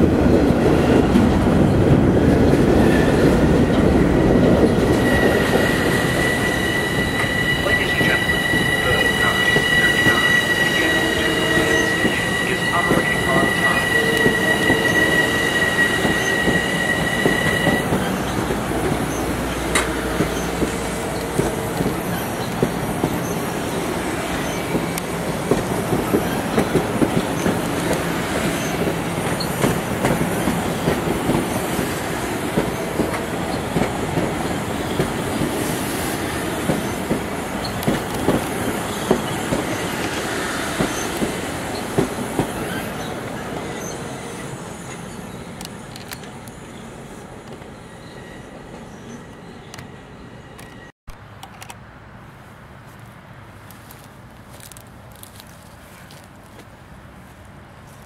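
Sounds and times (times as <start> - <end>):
high steady squeal: 4.0 - 21.3
train wheels clattering: 24.4 - 43.1.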